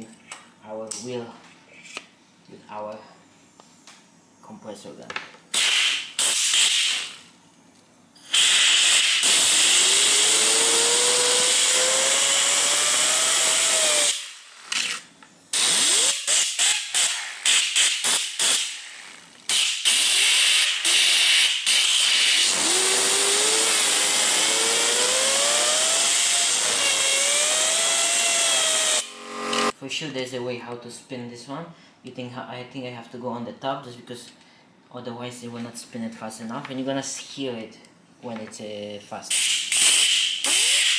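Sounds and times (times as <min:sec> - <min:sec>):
compressed air hissing: 0:05.5 - 0:07.2, 0:08.3 - 0:10.1
turbine wheel whine: 0:22.5 - 0:29.7.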